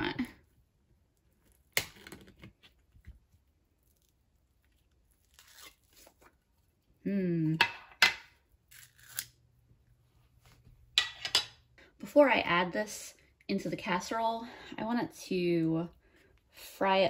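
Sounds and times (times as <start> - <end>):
tin tear strip snapping and scraping: 5.2 - 6.2, 8.7 - 9.4.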